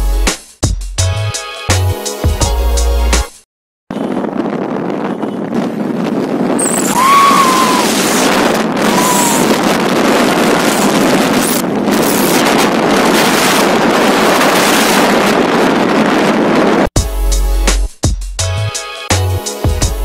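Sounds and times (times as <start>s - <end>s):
wind rushing over microphone: 3.9s - 16.9s
high-pitched rising falling tones: 6.6s - 9.7s.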